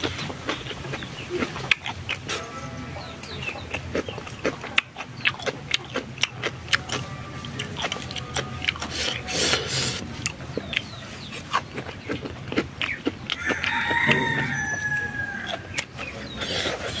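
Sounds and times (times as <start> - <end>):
rooster crowing: 13.3 - 15.8.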